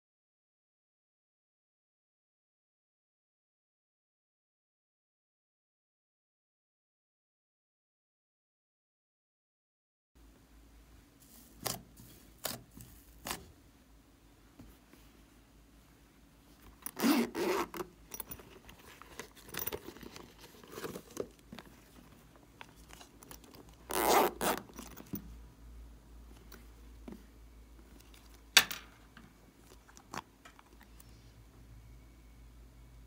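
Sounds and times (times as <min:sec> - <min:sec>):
zipper being pulled: 0:16.6 - 0:22.1, 0:22.7 - 0:25.2.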